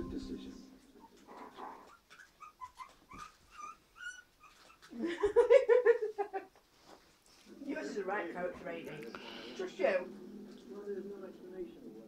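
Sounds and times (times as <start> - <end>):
puppies whimpering: 1.0 - 5.0.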